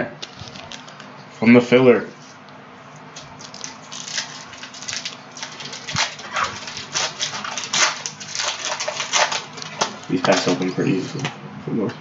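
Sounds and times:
foil wrapper crinkling and tearing: 0.2s - 1.0s, 3.2s - 11.3s.

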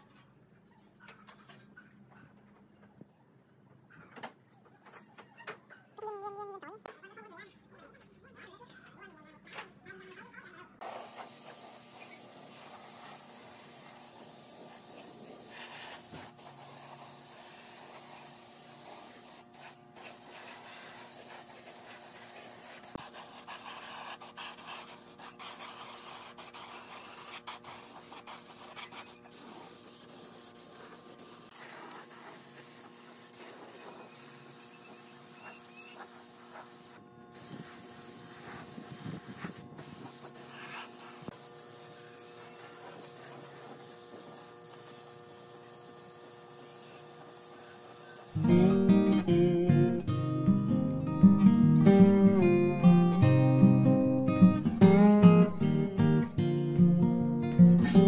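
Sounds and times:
spray gun hissing: 10.8s - 48.9s.

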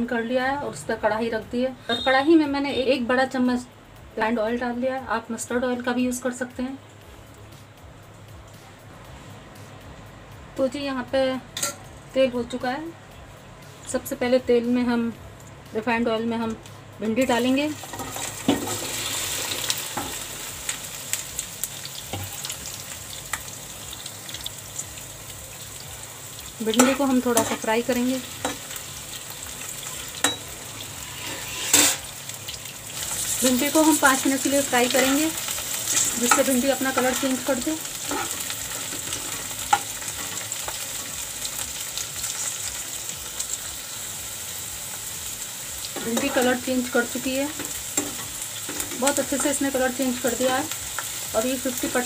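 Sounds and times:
okra sizzling in hot oil: 13.6s - 52.0s
metal spatula scraping pan: 30.2s - 32.1s, 38.0s - 40.4s.

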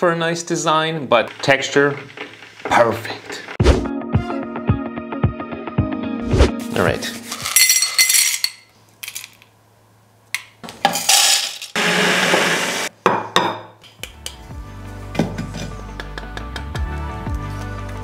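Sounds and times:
coffee grinder running: 1.2s - 3.6s, 11.0s - 12.9s
coffee beans rattling in metal cup: 7.3s - 9.4s, 10.8s - 11.8s.

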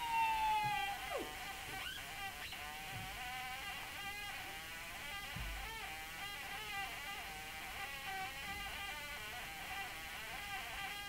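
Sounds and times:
wind instrument held high note: 0.0s - 2.0s
low thump: 5.4s - 5.8s.

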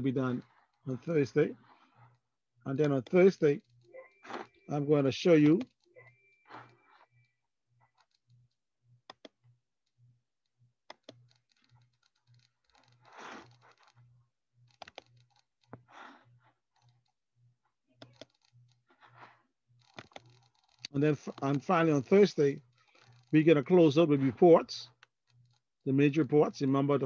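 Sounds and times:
computer keyboard and mouse clicks: 7.9s - 9.4s, 10.8s - 14.0s, 14.7s - 16.1s, 18.0s - 21.6s.

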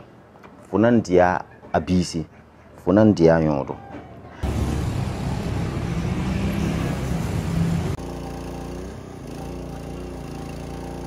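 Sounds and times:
noisy street sound: 0.0s - 11.0s
portable generator engine running: 4.4s - 11.0s.

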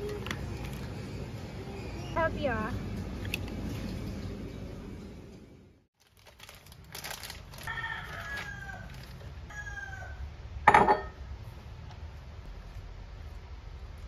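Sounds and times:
plastic bag rustling: 6.0s - 9.4s
rooster crowing: 7.6s - 10.3s
glass cup knocking on wood: 10.7s - 11.2s.

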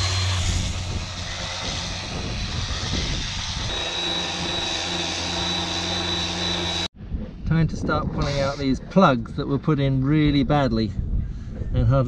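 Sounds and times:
electric sander whining: 0.0s - 6.9s.

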